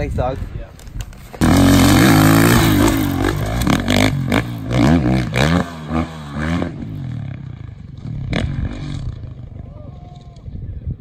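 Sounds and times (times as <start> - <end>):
dirt bike engine revving: 1.4 - 9.6.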